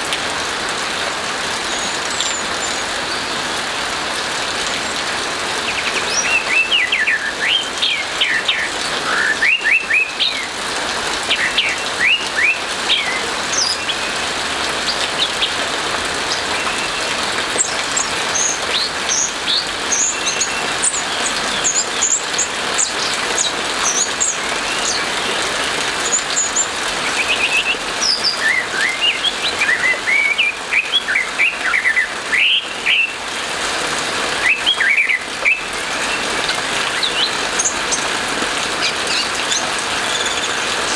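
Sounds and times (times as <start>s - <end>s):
rain hiss: 0.0s - 40.9s
thrush singing whistled notes: 5.7s - 10.6s, 11.3s - 14.2s, 26.0s - 33.2s, 34.4s - 38.1s, 38.8s - 40.9s.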